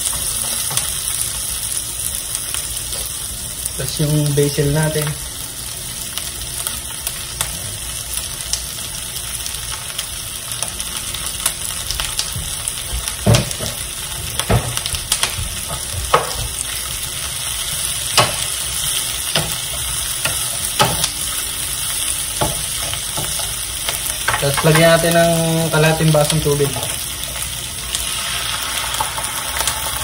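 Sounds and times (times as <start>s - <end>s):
vegetables sizzling in oil: 0.0s - 30.0s
wooden spoon knocking on pan: 13.2s - 13.8s, 14.4s - 16.6s, 22.4s - 23.5s.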